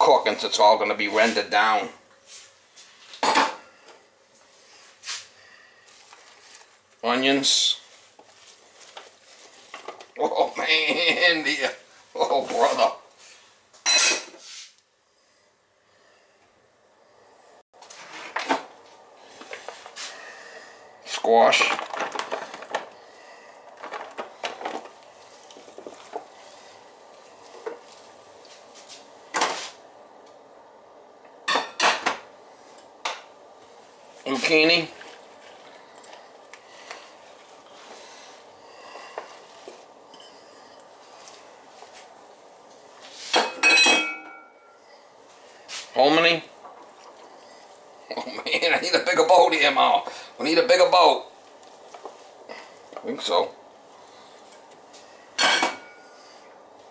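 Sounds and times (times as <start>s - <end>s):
vegetables rustling into a pan: 0.0s - 14.9s, 17.8s - 30.4s, 31.4s - 56.9s
kitchen knocks and rustles: 3.0s - 4.0s, 17.8s - 20.1s, 21.4s - 26.4s, 27.5s - 29.8s, 31.4s - 32.3s, 43.0s - 44.8s, 55.4s - 56.1s.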